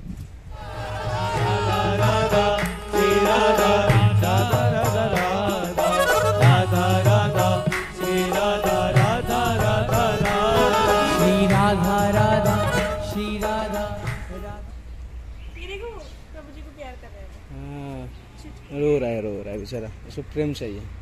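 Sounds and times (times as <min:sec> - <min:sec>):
melody over repeating beat: 0:01.2 - 0:09.2.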